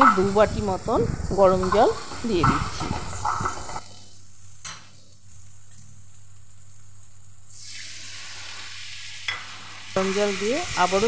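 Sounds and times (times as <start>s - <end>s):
water sizzling in hot pan: 0.0s - 11.0s.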